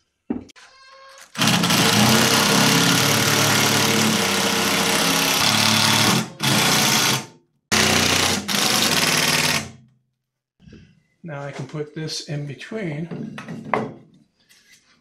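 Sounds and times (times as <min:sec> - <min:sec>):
impact driver hammering screws: 0:01.4 - 0:09.8.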